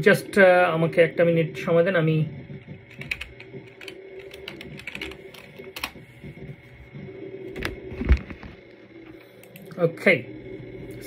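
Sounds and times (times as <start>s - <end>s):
typing on a keyboard: 2.6s - 6.0s.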